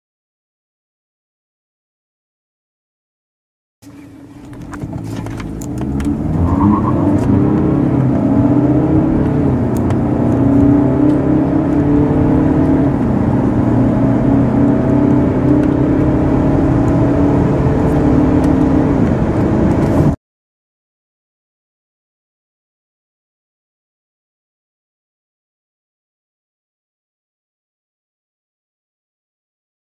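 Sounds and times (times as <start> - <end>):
diesel car engine accelerating: 3.8 - 20.2.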